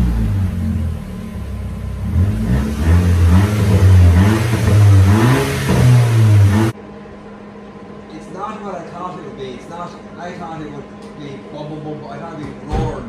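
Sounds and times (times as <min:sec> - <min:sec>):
turbocharged engine revving: 0:00.0 - 0:06.8.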